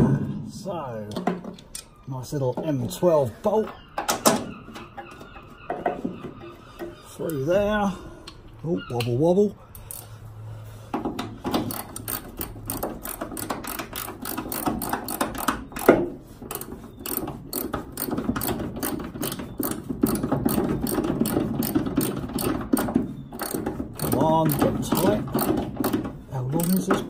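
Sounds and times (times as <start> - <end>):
socket ratchet clicking: 11.6 - 15.9, 16.5 - 26.0.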